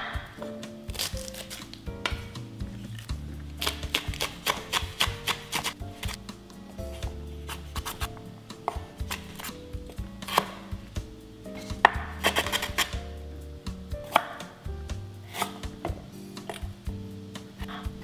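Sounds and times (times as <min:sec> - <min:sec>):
knife chopping on wooden board: 0:03.6 - 0:06.2, 0:08.7 - 0:09.6, 0:10.2 - 0:10.6, 0:11.6 - 0:13.0, 0:14.0 - 0:14.5.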